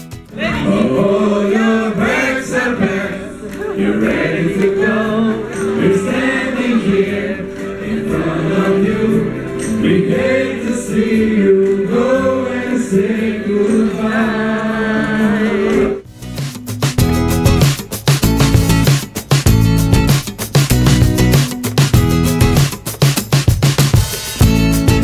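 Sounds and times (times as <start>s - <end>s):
group singing chorus: 0.3s - 16.0s.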